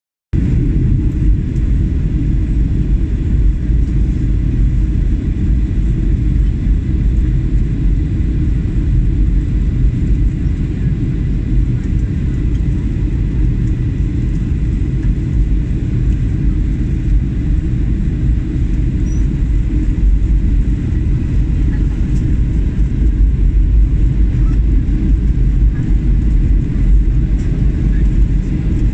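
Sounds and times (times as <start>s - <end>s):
jet engine cabin rumble: 0.4s - 28.9s.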